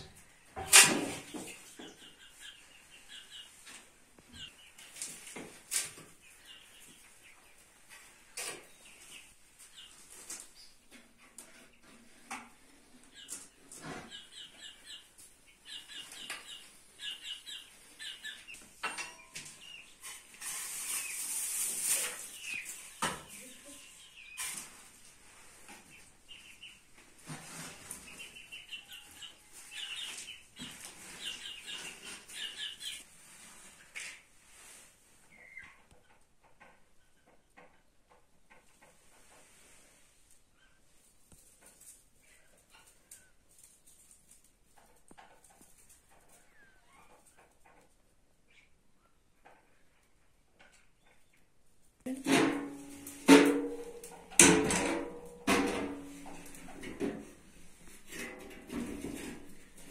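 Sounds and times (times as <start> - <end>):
birds chirping: 1.2 - 5.3, 12.7 - 21.6, 27.7 - 33.1.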